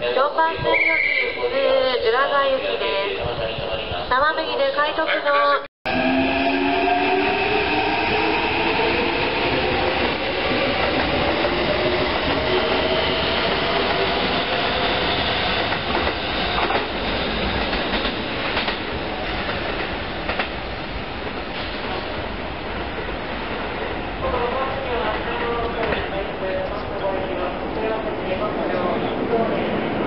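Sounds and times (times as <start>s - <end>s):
electric train motor whine: 5.9s - 9.4s
wheels rumbling on rail: 5.9s - 30.0s.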